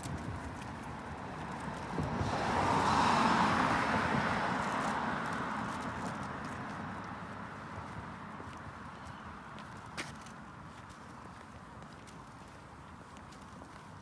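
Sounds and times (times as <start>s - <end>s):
car driving past: 1.9s - 5.9s.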